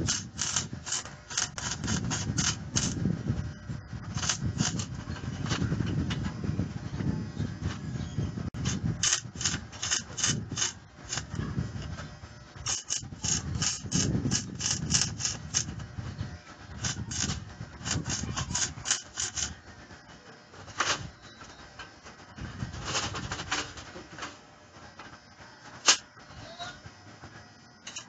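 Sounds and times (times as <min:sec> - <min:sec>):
welding arc crackling in pulses: 0:00.0 - 0:03.2, 0:04.0 - 0:05.0, 0:08.5 - 0:11.9, 0:12.5 - 0:16.0, 0:16.6 - 0:19.7.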